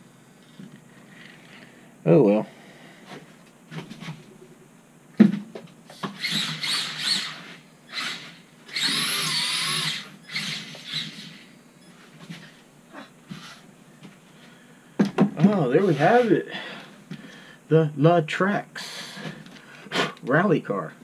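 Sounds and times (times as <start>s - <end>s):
toy car electric motor whining: 5.9s - 11.6s.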